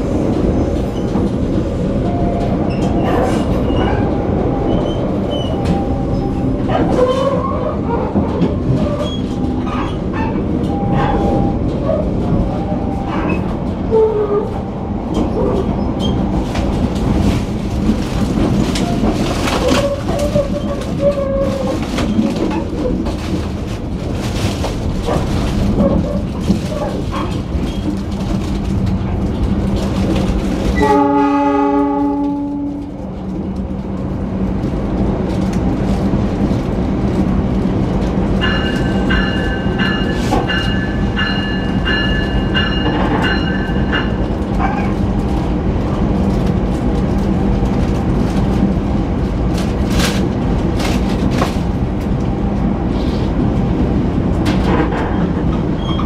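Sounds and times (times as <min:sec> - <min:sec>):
train rumbling: 0:00.0 - 0:56.0
wheels clacking over rail joints: 0:00.6 - 0:34.0, 0:35.2 - 0:45.5
locomotive horn: 0:30.8 - 0:33.0.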